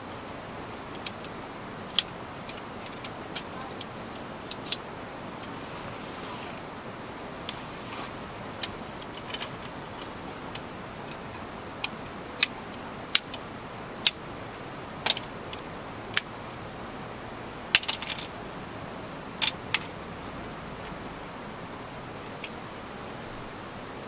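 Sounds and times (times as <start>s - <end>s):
steady hiss: 0.0s - 24.0s
camp cot clicking into place: 17.8s - 18.3s.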